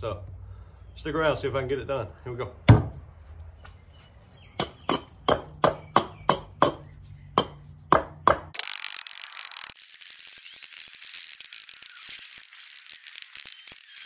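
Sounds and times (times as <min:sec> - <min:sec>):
hatchet chopping log: 0:04.6 - 0:08.6
high-pitched rattling hiss: 0:08.6 - 0:14.0.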